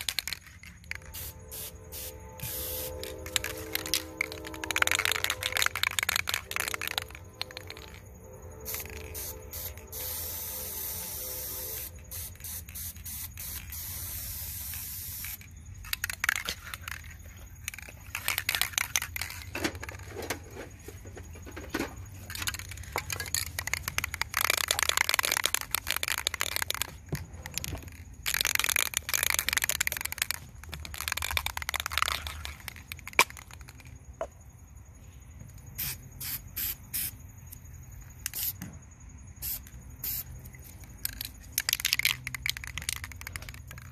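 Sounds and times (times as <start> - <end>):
spray paint can hissing: 0.0 - 8.0, 8.6 - 17.0, 17.6 - 19.5, 23.3 - 33.8, 35.8 - 37.2, 38.2 - 38.6, 39.4 - 40.3.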